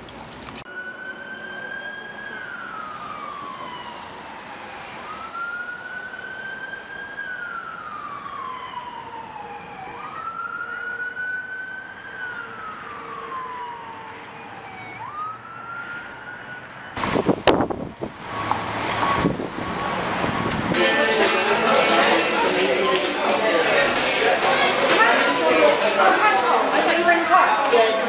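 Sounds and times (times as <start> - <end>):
siren wailing: 0.7 - 28.0
wind buffeting microphone: 17.0 - 20.8.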